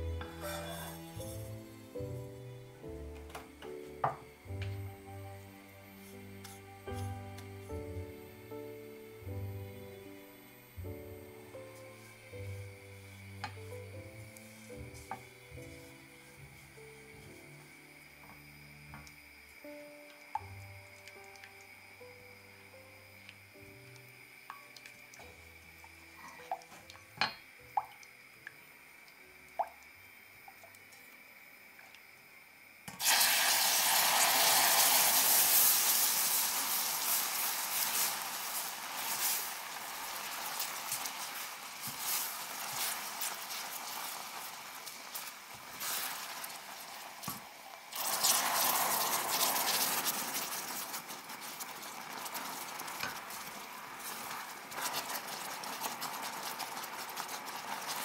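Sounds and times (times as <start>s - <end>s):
caramel sizzling and bubbling: 0.0s - 58.0s
spatula tapping on pan: 27.2s - 27.9s
spatula stirring in pan: 34.1s - 58.0s.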